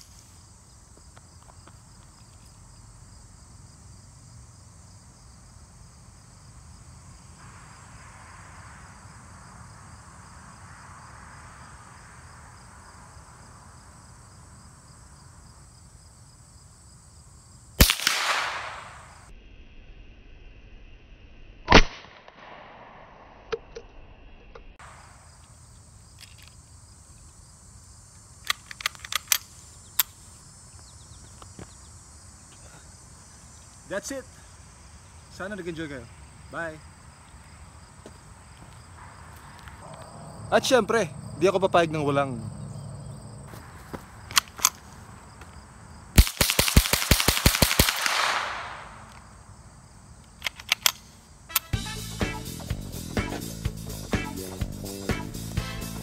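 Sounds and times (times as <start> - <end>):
insects chirring: 0.0 - 19.3, 24.6 - 56.0
rifle shots rapid fire: 17.8 - 19.0, 46.2 - 49.0
rifle handling clicks: 28.4 - 30.2, 44.3 - 44.8, 50.2 - 51.7.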